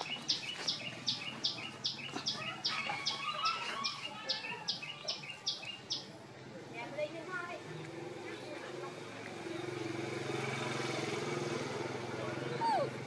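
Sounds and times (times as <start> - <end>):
bird chirping: 0.0 - 6.2.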